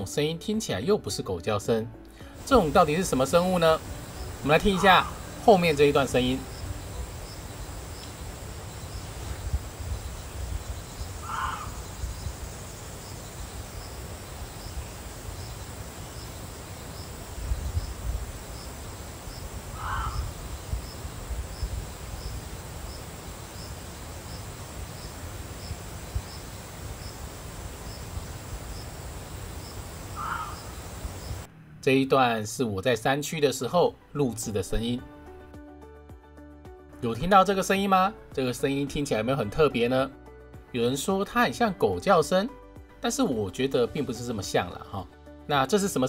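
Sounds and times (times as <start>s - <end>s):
insect ticking: 2.4s - 31.5s
deer barking: 4.6s - 5.4s, 11.2s - 11.8s, 19.7s - 20.4s, 30.1s - 30.8s.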